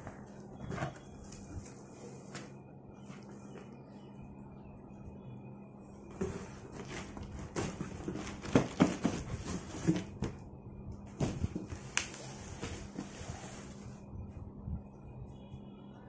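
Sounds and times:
cardboard box scraping: 6.1 - 10.2
cardboard rustling: 6.1 - 10.4.

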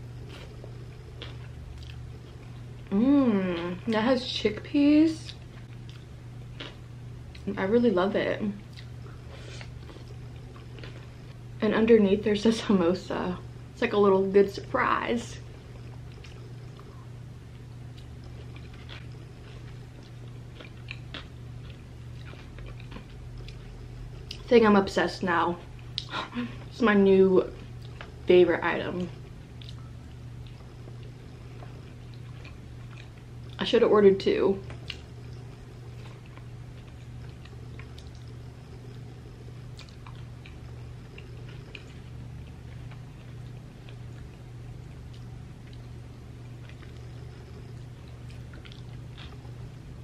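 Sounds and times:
steady low hum: 0.0 - 50.0
mouth chewing food: 0.2 - 3.7, 15.4 - 24.5, 29.1 - 33.6, 34.6 - 49.8.

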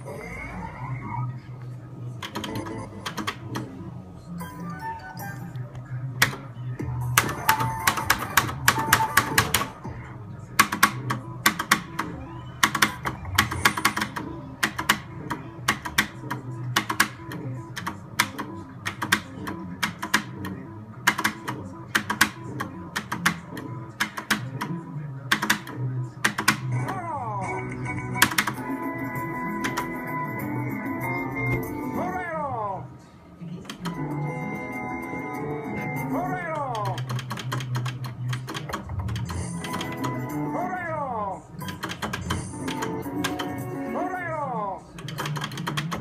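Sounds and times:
looping game music: 0.0 - 46.0
slot machine reels clicking: 10.6 - 24.7, 36.6 - 40.5, 41.6 - 44.0, 45.0 - 46.0.

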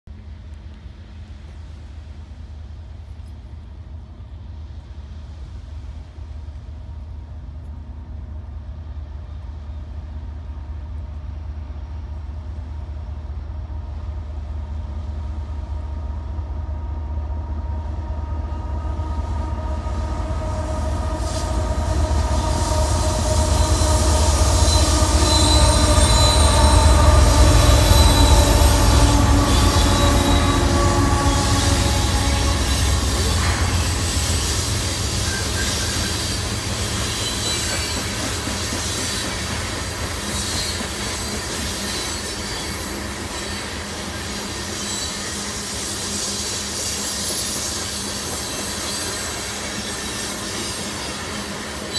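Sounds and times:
diesel locomotive rumble: 0.1 - 50.2
wheels squealing on rails: 17.8 - 51.9.

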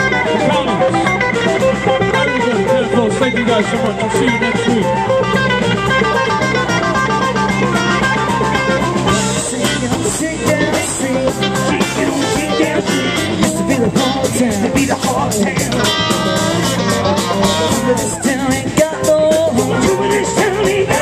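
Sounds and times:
drum kit with cymbals: 0.0 - 21.0
electric guitars: 0.0 - 21.0.

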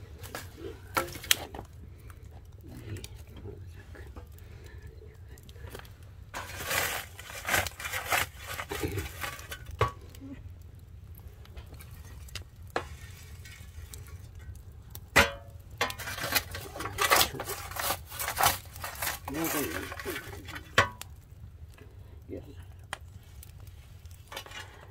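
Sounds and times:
kitchen utensils and dishes clinking: 15.2 - 21.0.

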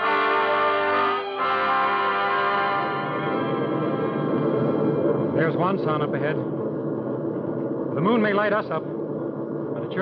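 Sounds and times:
held brass chord: 0.0 - 3.5
aircraft engines droning: 0.0 - 10.0.

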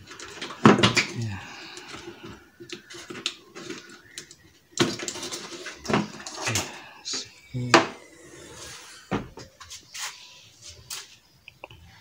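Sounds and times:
clicks and knocks of parts handled: 0.0 - 6.8.

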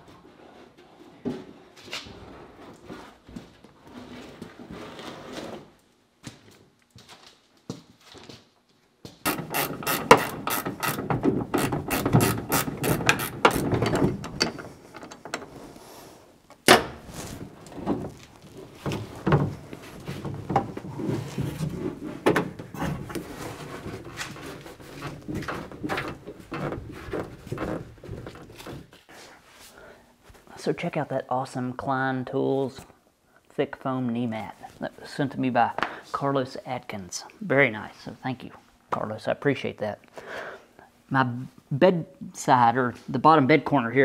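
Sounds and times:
ratchet wrench clicking: 9.3 - 11.0
metal knocks: 9.3 - 15.5.

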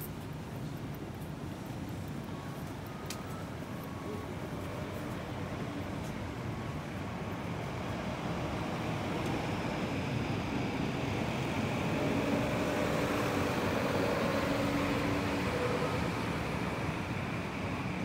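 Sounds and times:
street traffic noise: 0.0 - 18.0.

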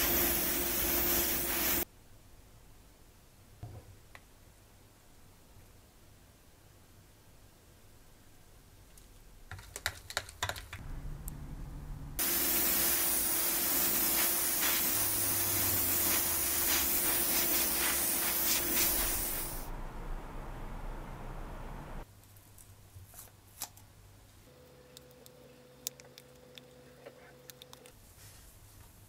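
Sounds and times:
airbrush spraying hiss: 0.0 - 1.9, 12.2 - 19.8
low tone: 10.8 - 12.2, 19.7 - 22.0.

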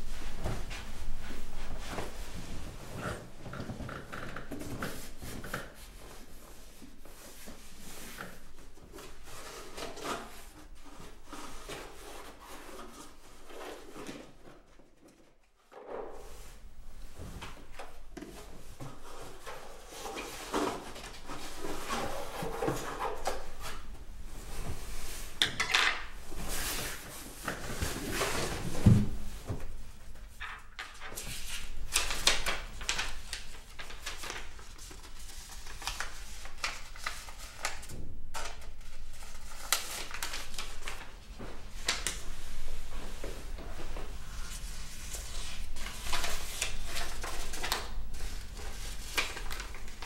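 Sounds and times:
paper rustling and crinkling: 16.2 - 50.0.

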